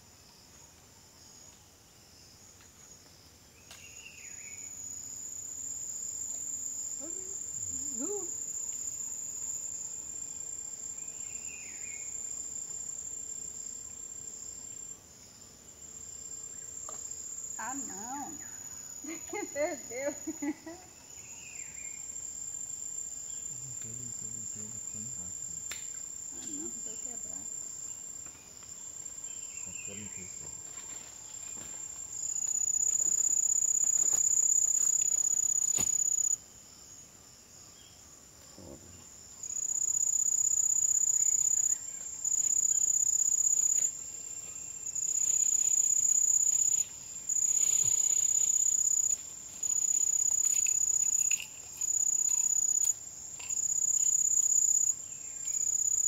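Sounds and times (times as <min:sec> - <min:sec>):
insects trilling: 0:00.0 - 0:56.0.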